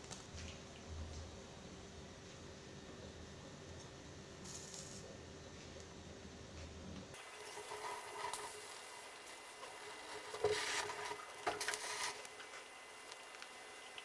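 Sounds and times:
eggplant skin crackling over flame: 7.1s - 14.0s.

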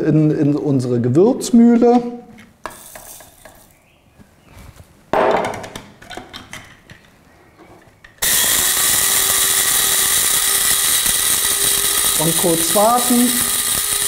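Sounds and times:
seeds rattling into grinder: 8.2s - 14.0s
spice grinder motor grinding: 8.2s - 14.0s.

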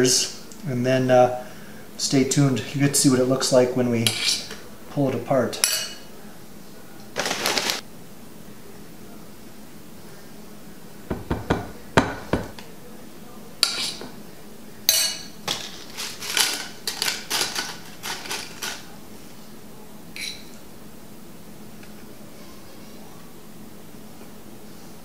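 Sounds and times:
utensils clinking on metal tin: 14.9s - 18.9s.

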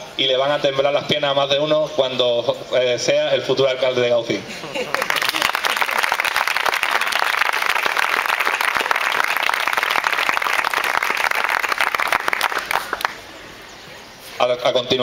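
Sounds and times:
audience applauding: 4.9s - 13.2s.

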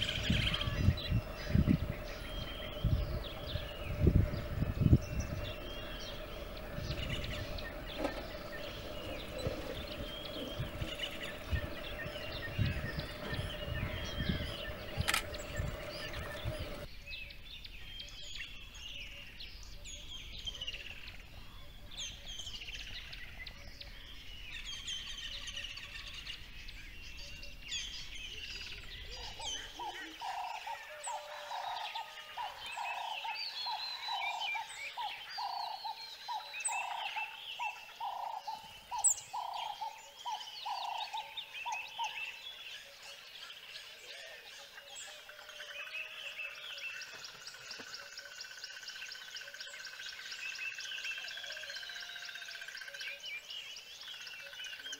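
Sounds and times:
bird call of repeated notes: 0.0s - 16.9s
birds chirping and whistling: 0.0s - 20.6s, 22.0s - 54.9s
low thumping noise: 0.2s - 16.8s.

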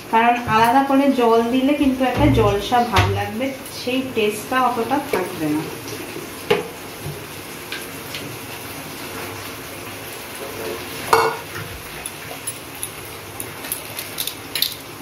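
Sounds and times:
steel bowl clinking down: 11.1s - 12.9s.

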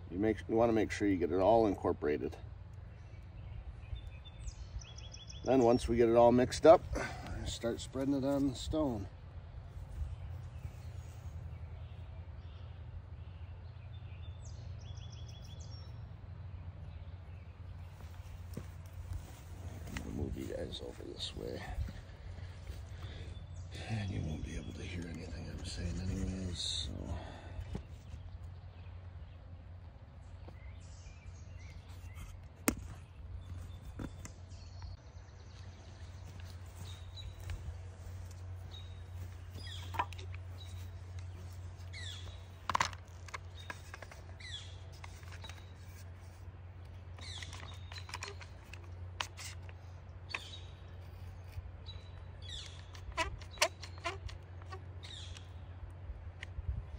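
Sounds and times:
bird chirping: 0.0s - 55.8s
low outdoor background rumble: 0.0s - 56.9s
faint bird chirps: 30.4s - 42.6s.

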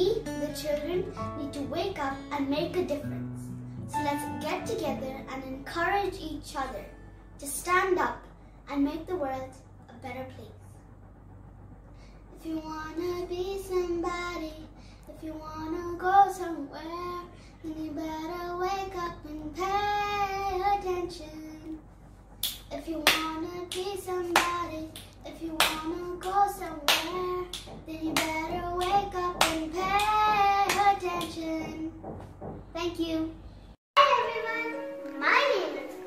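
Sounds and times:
girl singing: 0.0s - 7.0s, 12.4s - 21.7s, 22.7s - 32.0s, 34.0s - 36.0s.

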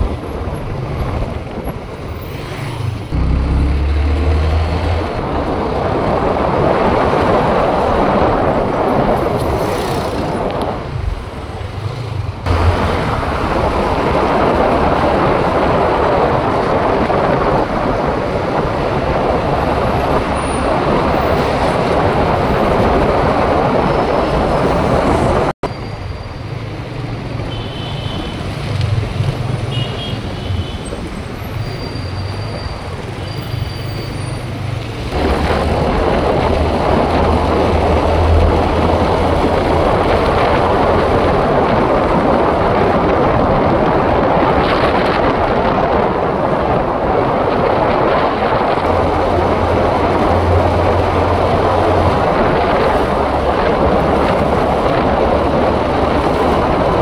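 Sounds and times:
wind and road noise: 0.0s - 57.0s
motorcycle engine: 2.8s - 5.8s.

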